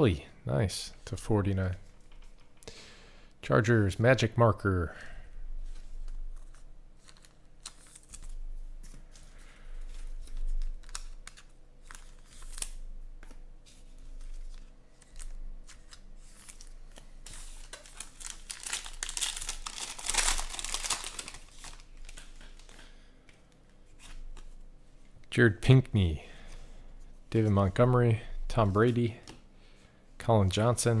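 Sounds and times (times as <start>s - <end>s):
wrapper crinkling and tearing: 6.0s - 9.0s, 9.8s - 12.8s, 14.1s - 22.8s.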